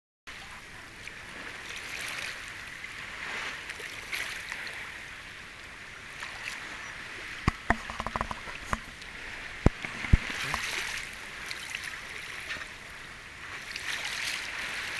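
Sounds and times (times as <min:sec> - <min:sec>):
water sloshing and lapping: 0:00.3 - 0:14.9
sharp clicks and knocks: 0:07.4 - 0:08.9, 0:09.6 - 0:10.7.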